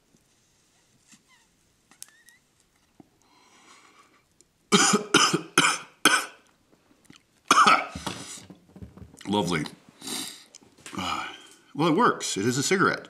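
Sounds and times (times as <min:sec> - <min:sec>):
man coughing loudly: 0:04.7 - 0:06.4, 0:07.5 - 0:08.0.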